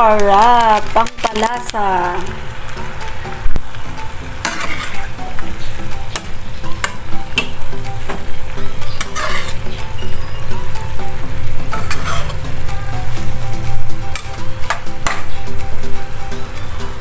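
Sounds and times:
vegetables sizzling in a pan: 0.0s - 17.0s
spatula clacking and scraping pan: 4.0s - 10.8s, 11.5s - 12.6s, 14.0s - 15.6s.

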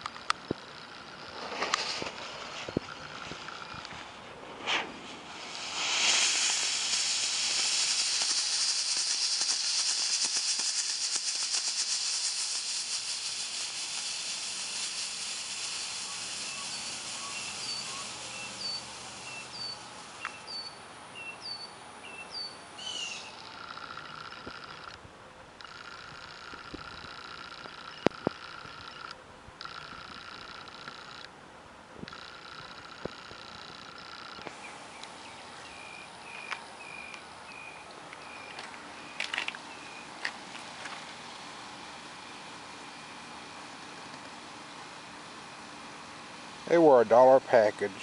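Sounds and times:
fuse sputtering: 0.0s - 20.6s, 22.9s - 25.0s, 25.6s - 31.3s, 32.0s - 35.1s
smoke ball hissing: 0.0s - 24.7s, 25.6s - 29.0s, 32.0s - 48.0s.

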